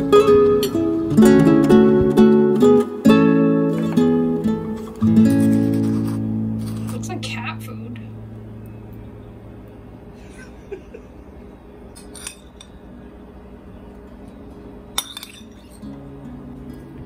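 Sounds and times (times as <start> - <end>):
utensils clinking on ceramic and stone: 12.0 - 12.8, 15.0 - 15.9.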